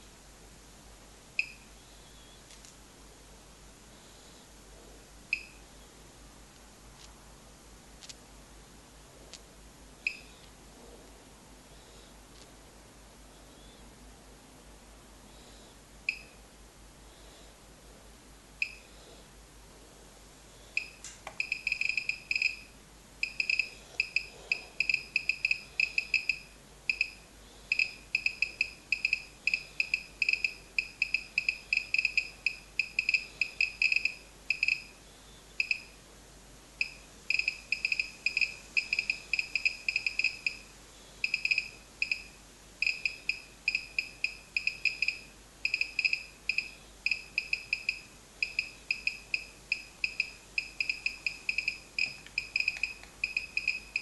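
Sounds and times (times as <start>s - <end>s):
dosimeter short high beeps: 1.4s - 1.7s, 5.4s - 5.6s, 10.1s - 10.3s, 16.1s - 16.4s, 18.6s - 18.9s, 20.8s - 35.0s, 35.6s - 36.0s, 36.8s - 54.0s.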